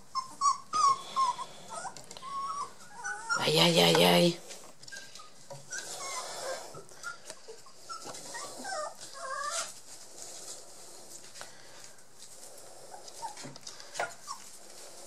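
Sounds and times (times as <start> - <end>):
puppies whimpering: 0.0 - 9.8, 12.8 - 14.8.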